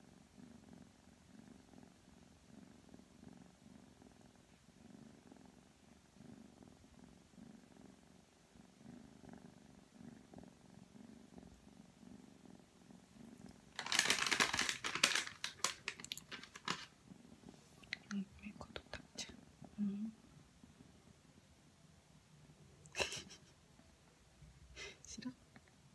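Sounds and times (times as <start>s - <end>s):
kitten purring: 0.0s - 25.9s
loud rustling with clicks: 13.8s - 16.9s.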